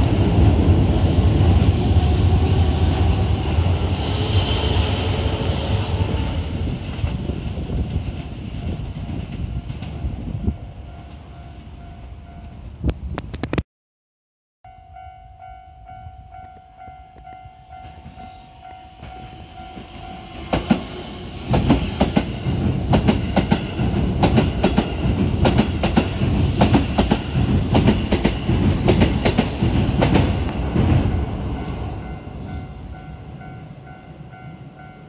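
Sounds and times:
train rumble: 0.0s - 13.5s, 15.3s - 35.0s
train wheels clacking over rail joints: 20.5s - 31.0s.

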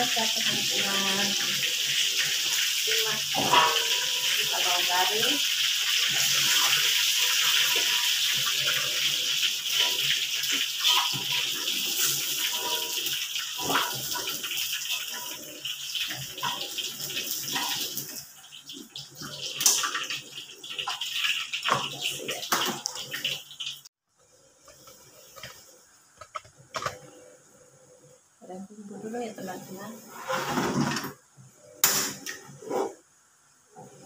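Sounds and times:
hot oil sizzling in a wok: 0.0s - 24.0s
metal spatula scraping a wok: 3.3s - 4.8s, 30.0s - 30.9s, 32.4s - 33.0s.

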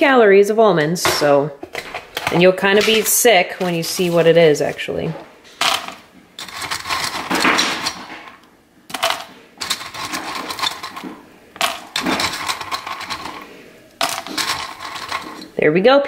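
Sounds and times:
almonds rattling into plastic bag: 2.3s - 4.9s.

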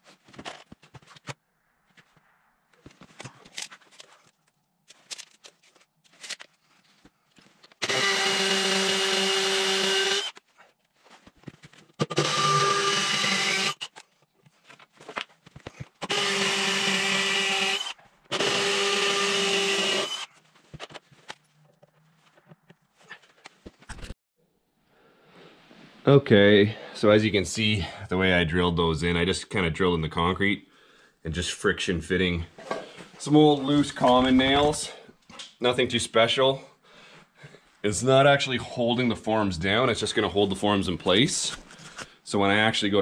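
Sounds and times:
drill boring into concrete: 7.8s - 10.4s, 12.0s - 13.9s, 16.0s - 20.3s.

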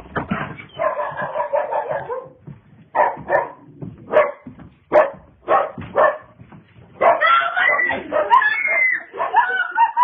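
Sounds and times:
dog barking: 0.3s - 6.4s, 7.0s - 10.0s
dog howling: 7.0s - 10.0s.

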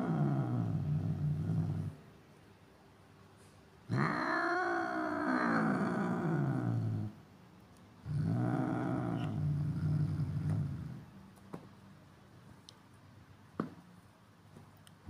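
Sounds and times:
cat growling yowls: 0.0s - 2.0s, 3.9s - 7.2s.

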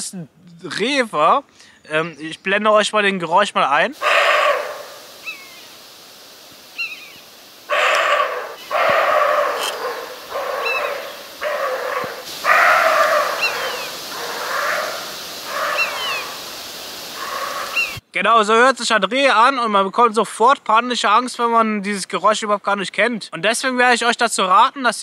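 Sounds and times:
deer barking: 4.0s - 5.8s, 6.8s - 18.0s.

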